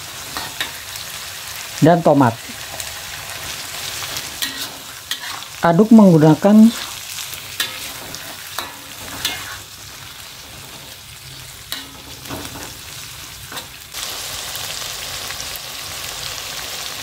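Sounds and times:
paste sizzling in hot oil: 0.0s - 17.0s
metal spatula scraping a wok: 0.1s - 1.1s, 2.5s - 5.6s, 6.5s - 13.8s.

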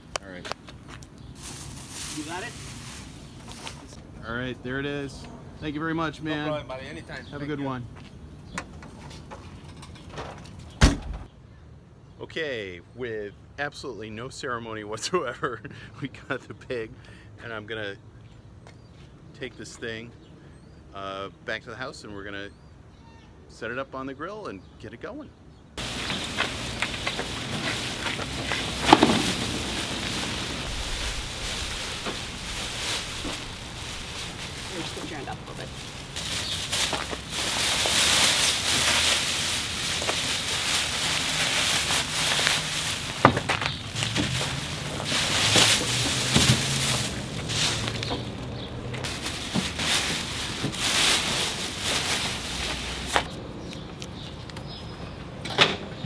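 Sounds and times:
plastic bag crinkling: 25.8s - 48.0s, 49.0s - 53.1s.

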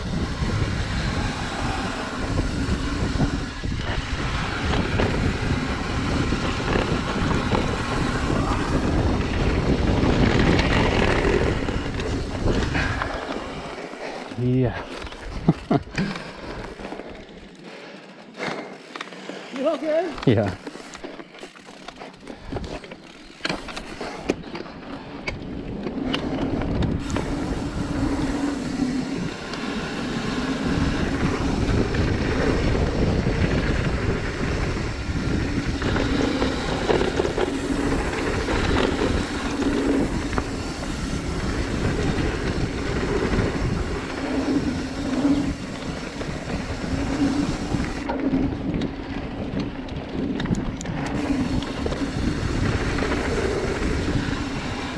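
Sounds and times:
mountain bike rumbling over trail: 0.0s - 54.9s.

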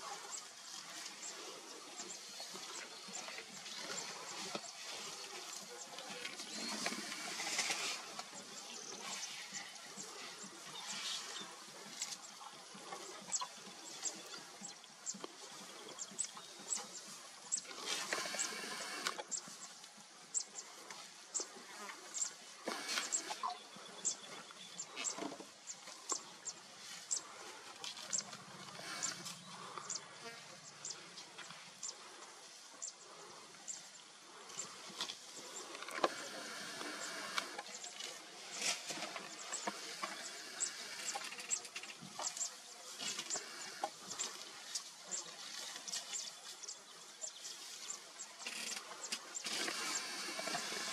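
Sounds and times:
rustling hiss: 0.0s - 50.9s
elephants tearing grass: 3.2s - 9.6s, 48.4s - 50.9s.

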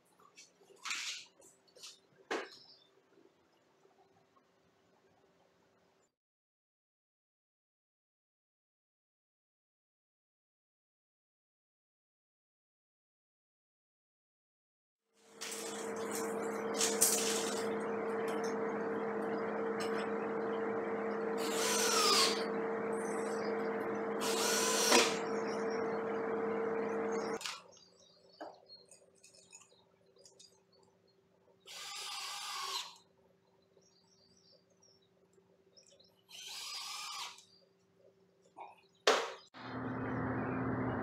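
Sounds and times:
steady droning hum: 15.4s - 27.4s
cordless drill driving screws: 21.4s - 22.4s, 24.2s - 25.2s, 31.7s - 33.0s, 36.3s - 37.4s.

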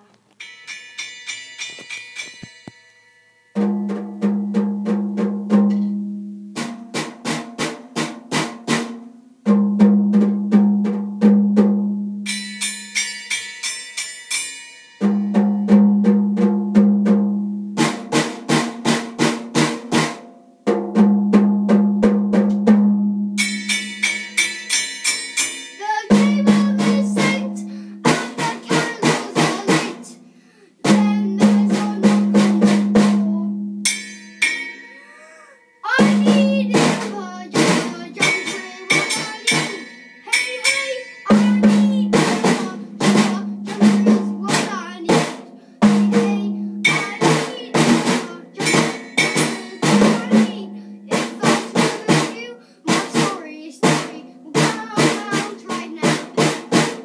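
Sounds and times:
toy drum kit beaten with sticks: 0.0s - 2.9s, 3.5s - 30.2s, 30.8s - 57.0s
small cymbal ringing: 0.4s - 4.0s, 12.2s - 15.9s, 23.2s - 26.5s, 33.6s - 36.3s, 38.2s - 42.2s, 48.6s - 51.1s.

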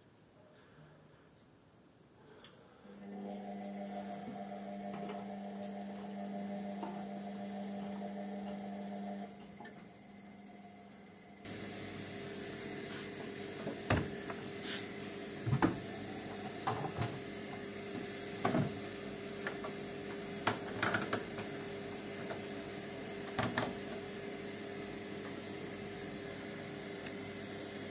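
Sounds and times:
steady hum: 2.2s - 20.4s.

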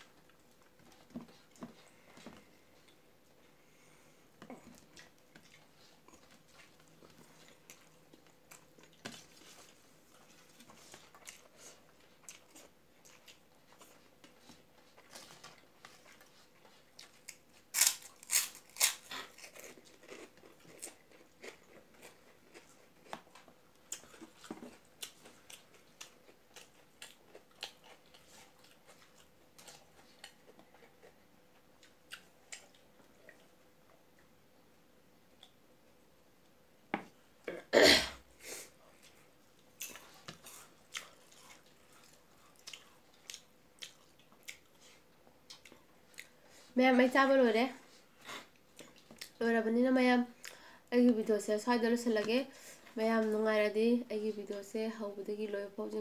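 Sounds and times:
soft chewing: 0.0s - 37.5s, 38.4s - 49.5s, 50.2s - 51.4s, 52.1s - 53.4s
loud crunching of fried snack: 17.2s - 22.7s.

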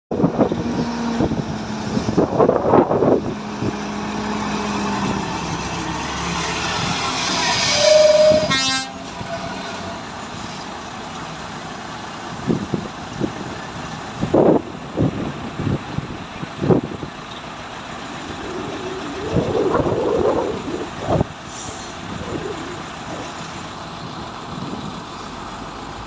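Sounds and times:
diesel truck engine: 0.1s - 26.0s
truck horn toot: 6.8s - 10.1s.

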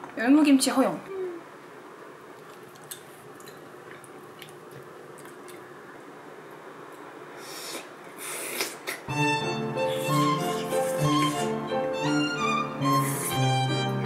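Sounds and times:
violin music: 9.1s - 14.0s.

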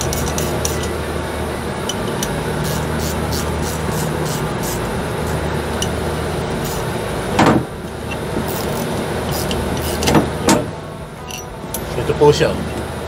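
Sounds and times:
low machinery hum: 0.0s - 13.0s
metal scraping clunks: 9.3s - 12.0s.

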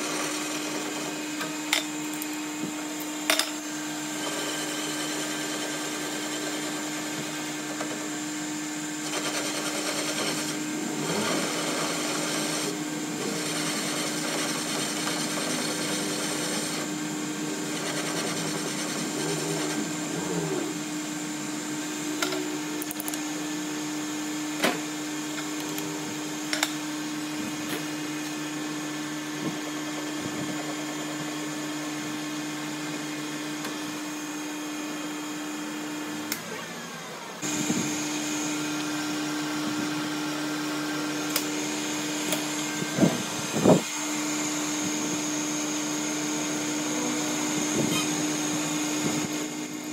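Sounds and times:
cutting tool turning metal: 0.0s - 31.2s, 37.4s - 49.9s
metal lathe humming: 0.0s - 49.9s.

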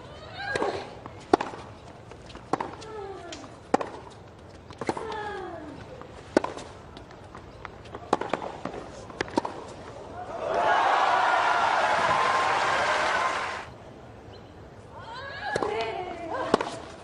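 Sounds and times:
racket striking tennis ball: 0.5s - 1.7s, 2.5s - 2.8s, 6.3s - 6.7s, 8.1s - 9.8s
tennis ball bouncing: 0.5s - 5.2s, 6.3s - 9.9s.

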